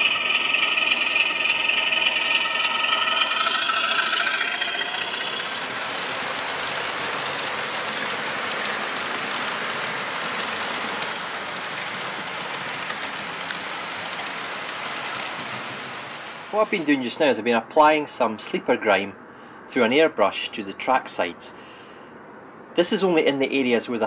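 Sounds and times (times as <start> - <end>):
locomotive engine hum: 0.0 - 16.8
model train wheels rolling on rails: 0.0 - 17.3.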